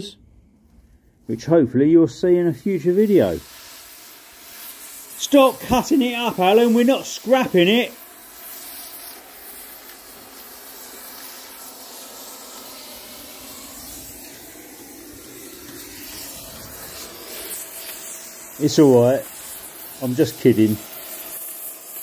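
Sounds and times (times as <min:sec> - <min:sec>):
cutting torch hissing: 0:01.3 - 0:22.0.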